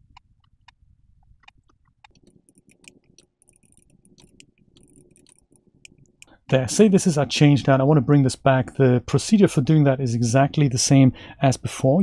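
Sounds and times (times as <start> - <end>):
small irregular clicks: 0.0 - 6.5.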